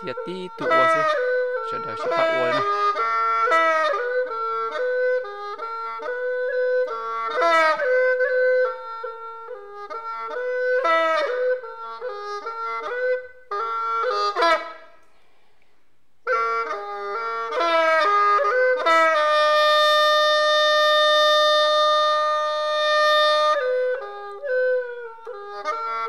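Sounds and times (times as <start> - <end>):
reedy wind instrument melody: 0.0 - 14.9, 16.2 - 26.0.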